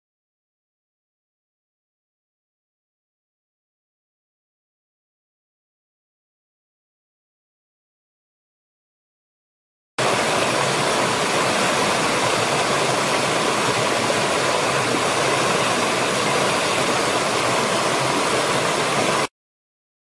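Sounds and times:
stream rushing over stones: 10.0s - 19.3s.

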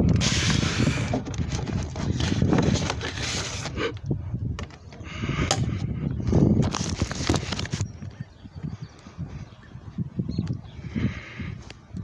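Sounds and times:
padded mailer rustling: 0.2s - 3.8s, 6.6s - 7.9s.

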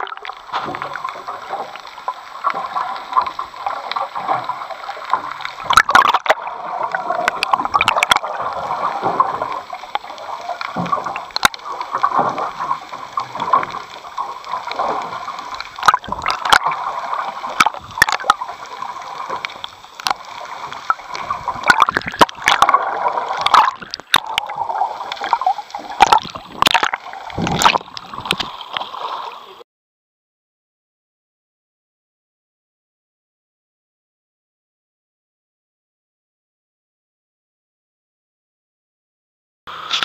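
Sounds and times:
muffled underwater water rushing: 0.0s - 29.6s.

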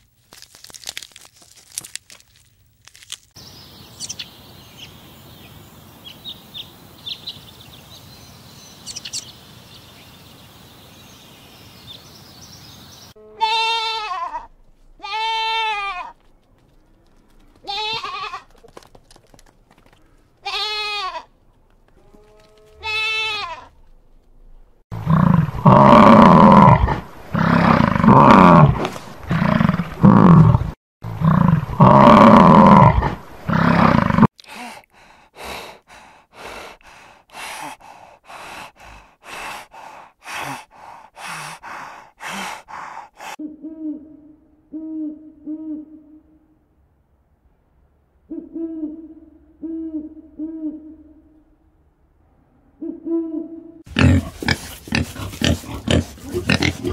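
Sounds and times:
owl hooting low: 43.2s - 46.5s, 48.3s - 51.5s, 52.7s - 53.8s.

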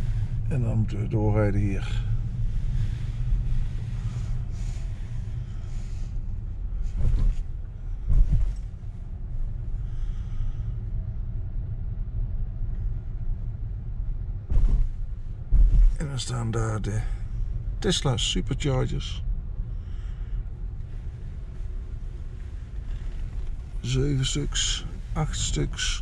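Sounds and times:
road and tyre rumble in car cabin: 0.0s - 26.0s
dull thumps: 8.1s - 8.6s, 14.5s - 16.0s.

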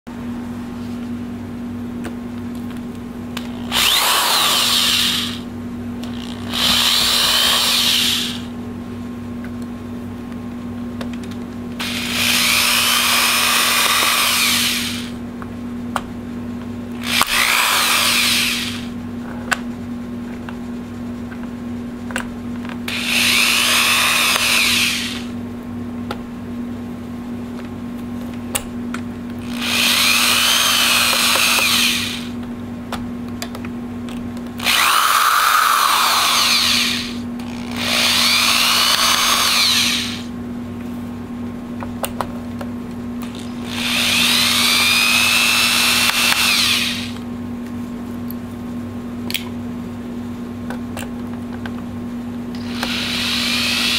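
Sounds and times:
low steady hum: 0.1s - 53.9s
electric screwdriver motor whine: 3.4s - 5.4s, 6.1s - 8.5s, 11.8s - 15.2s, 17.0s - 18.9s, 22.9s - 25.3s, 29.4s - 32.4s, 34.6s - 40.3s, 43.3s - 47.2s, 52.6s - 53.9s.

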